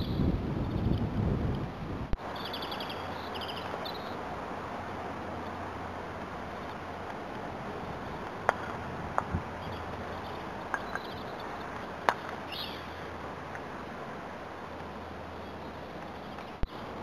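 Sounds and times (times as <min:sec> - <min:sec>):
steady outdoor hiss: 0:00.0 - 0:17.0
croquet mallets striking balls: 0:08.2 - 0:12.5.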